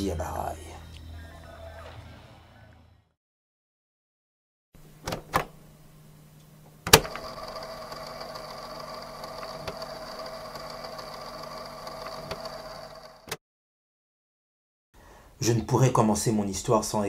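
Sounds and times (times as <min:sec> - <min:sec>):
mechanical hum with high whine: 0:04.8 - 0:13.2.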